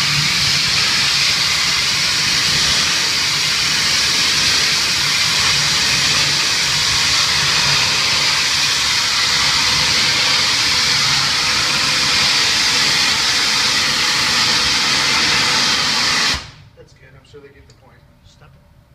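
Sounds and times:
pressure washer spraying metal: 0.0 - 16.6.

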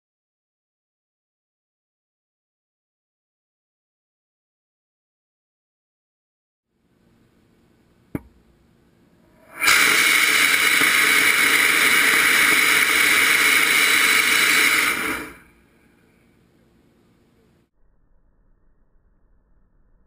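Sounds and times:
rocket motor hissing rush: 9.3 - 15.6.

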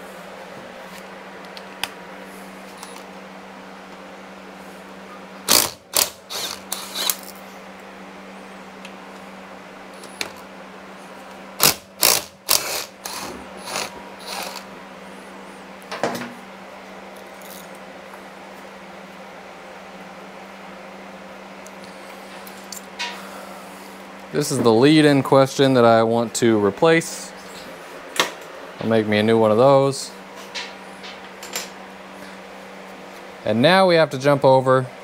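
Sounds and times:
shop fan humming: 0.0 - 35.0
socket ratchet clicking: 11.6 - 14.6.

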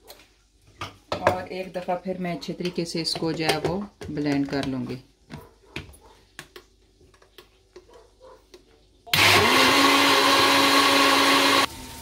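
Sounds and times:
blender motor whirring: 9.1 - 12.0.

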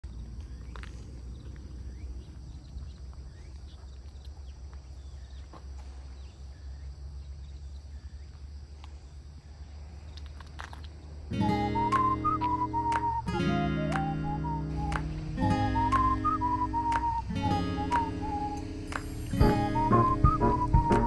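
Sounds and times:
faint bird chirps: 0.4 - 8.5
steady low rumble: 14.5 - 21.0.

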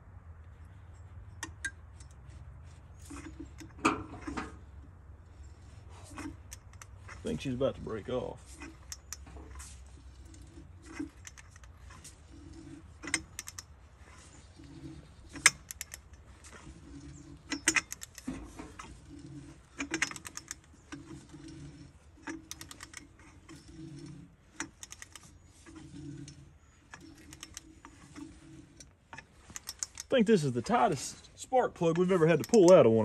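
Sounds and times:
short creaks: 0.4 - 33.0.

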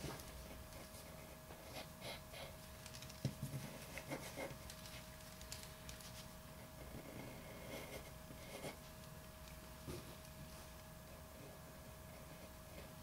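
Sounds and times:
faint hum: 0.0 - 13.0
pencil scratching on paper: 4.0 - 4.5.

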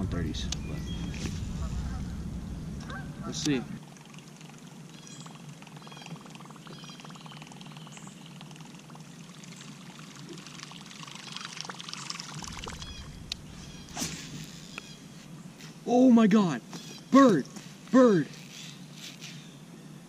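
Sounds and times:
fishing reel whirring: 18.3 - 19.5.

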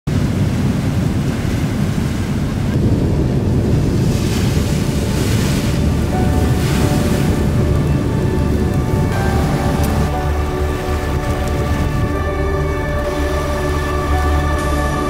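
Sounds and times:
ocean surf breaking on beach: 0.1 - 15.0
wind buffeting microphone: 0.1 - 15.0.

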